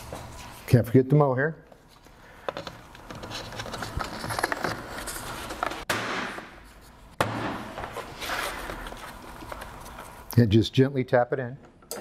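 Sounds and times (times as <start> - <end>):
weatherstrip rustling and scraping: 2.9 - 5.9.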